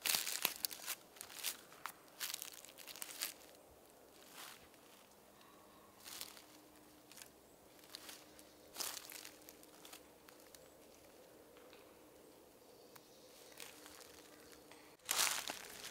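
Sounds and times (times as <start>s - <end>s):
leaves rustling and snapping: 0.0s - 3.6s, 6.0s - 11.9s, 12.9s - 15.9s.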